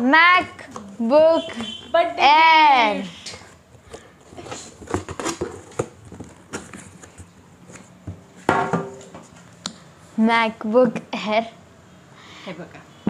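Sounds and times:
cardboard rustling: 0:03.5 - 0:08.4
cardboard knocks and scrapes: 0:03.9 - 0:09.4.

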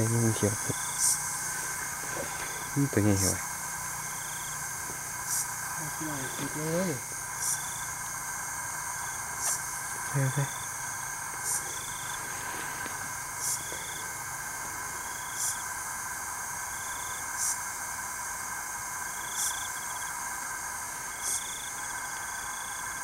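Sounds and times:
insect buzzing call: 0:00.0 - 0:23.0
night insect chorus: 0:00.0 - 0:23.0
short insect chirp: 0:00.0 - 0:23.0.

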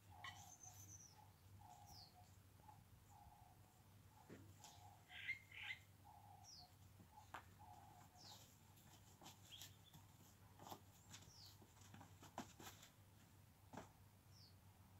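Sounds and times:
birds chirping: 0:00.0 - 0:11.9.

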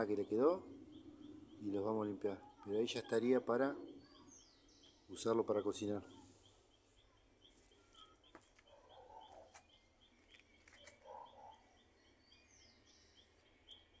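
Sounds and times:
bird chirps: 0:00.0 - 0:14.0
regular high chirp: 0:06.1 - 0:11.4.

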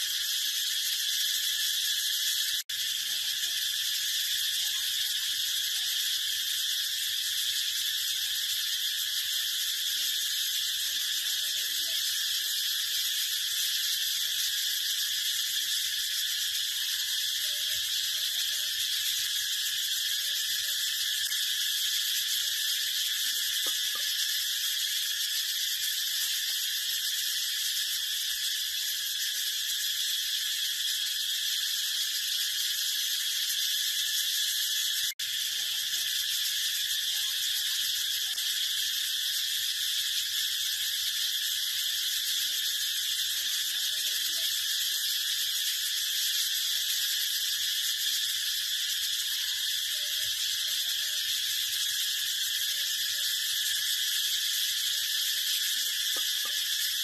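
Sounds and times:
cicada buzzing: 0:00.0 - 0:57.0.

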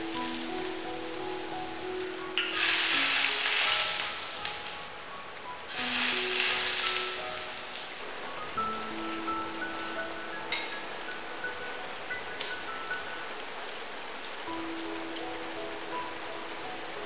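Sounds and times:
hot oil sizzling: 0:00.0 - 0:04.9, 0:05.7 - 0:13.2.

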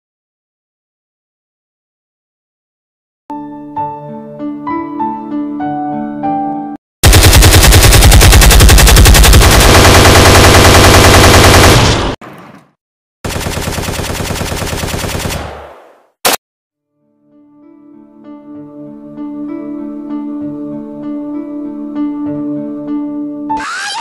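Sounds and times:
machine-gun fire: 0:07.0 - 0:12.2, 0:13.2 - 0:16.4.

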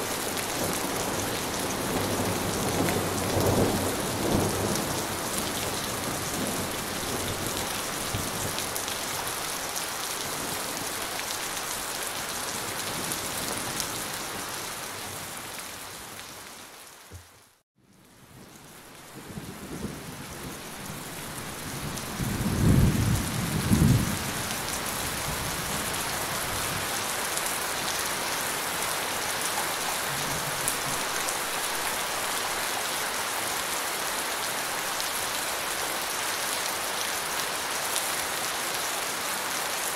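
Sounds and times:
heavy rain falling: 0:00.0 - 0:17.6, 0:18.2 - 0:39.9.

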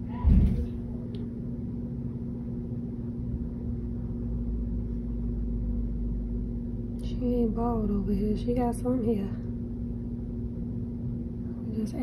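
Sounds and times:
low rumble: 0:00.0 - 0:11.7
low hum with held tone: 0:00.0 - 0:12.0.

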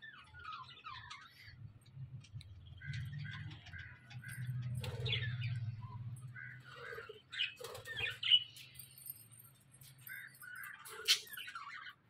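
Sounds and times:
budgerigars chirping and chattering: 0:00.0 - 0:09.1, 0:10.0 - 0:12.0.

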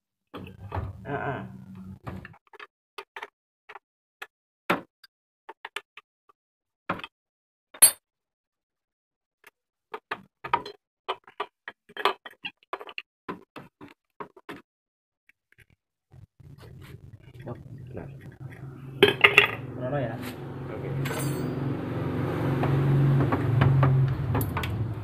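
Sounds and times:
clicks and knocks of tools: 0:24.3 - 0:24.8.

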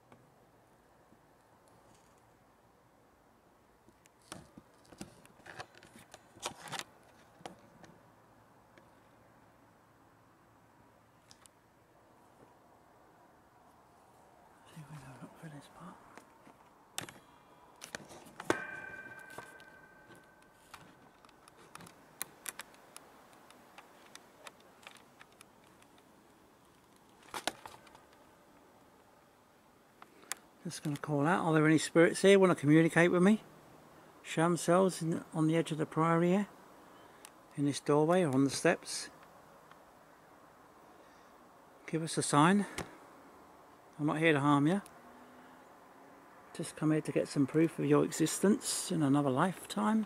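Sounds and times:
microphone handling clicks and rustles: 0:03.9 - 0:08.0, 0:16.0 - 0:28.3
faint hiss: 0:08.8 - 0:16.3
ringing tone: 0:18.5 - 0:20.7.

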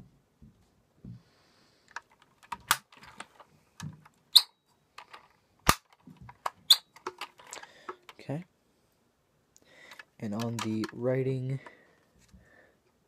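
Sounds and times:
model car handling clicks: 0:09.9 - 0:11.0.

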